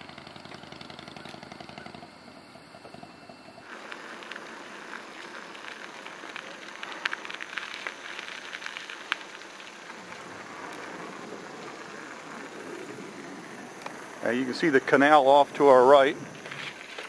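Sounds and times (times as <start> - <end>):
bicycle tyres crunching on gravel: 0.0 - 17.0
ticks of small stones: 3.6 - 10.9.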